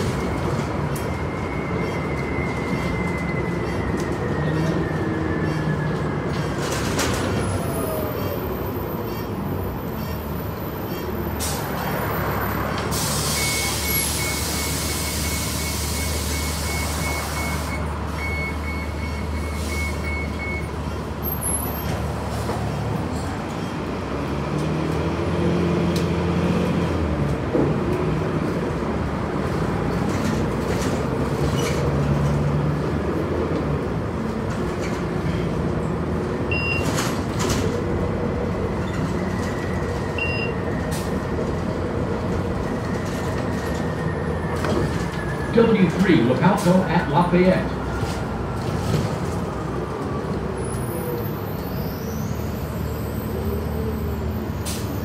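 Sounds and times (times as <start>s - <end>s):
bus engine running: 0.0s - 55.0s
high beeps: 40.2s - 40.6s.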